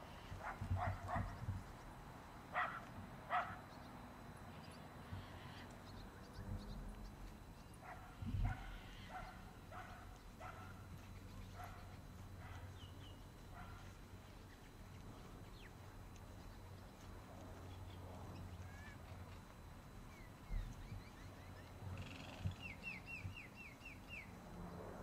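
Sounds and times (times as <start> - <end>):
dog barking: 0.4 - 1.4, 2.5 - 3.6, 7.8 - 10.8, 11.6 - 12.7, 13.5 - 13.8.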